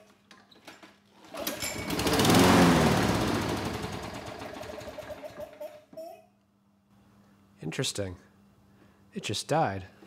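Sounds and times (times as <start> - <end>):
lawn mower pull-start: 0.6 - 5.6
lawn mower engine running: 1.3 - 5.4.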